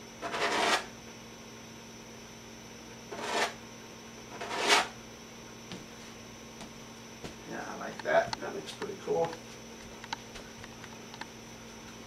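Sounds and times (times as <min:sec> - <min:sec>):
faint steady hum: 0:00.0 - 0:12.0
palette knife scraping canvas: 0:00.2 - 0:00.9, 0:03.1 - 0:03.6, 0:04.4 - 0:04.9.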